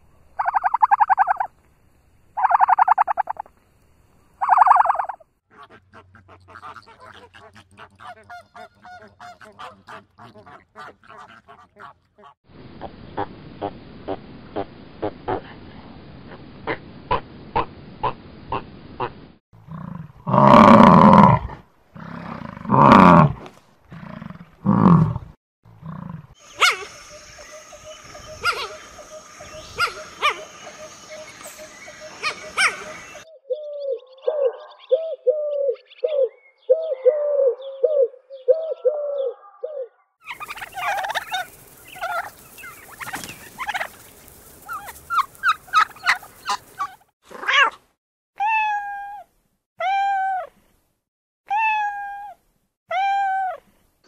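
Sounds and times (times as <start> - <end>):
animal calls: 0.4 - 1.5, 2.4 - 3.5, 4.4 - 12.4, 26.4 - 47.8
turkey gobbling: 0.4 - 1.5, 2.4 - 3.5, 4.4 - 12.4, 26.5 - 33.3, 38.7 - 47.0.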